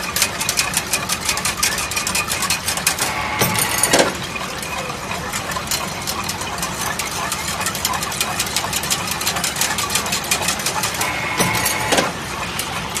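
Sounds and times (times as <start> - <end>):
chain link fence machine clattering: 0.0 - 13.0
machine stroke with ringing tone: 3.0 - 4.2, 11.0 - 12.2.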